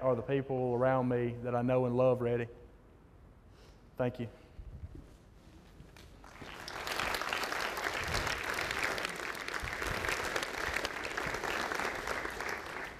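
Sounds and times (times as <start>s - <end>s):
audience applauding: 6.2s - 12.9s.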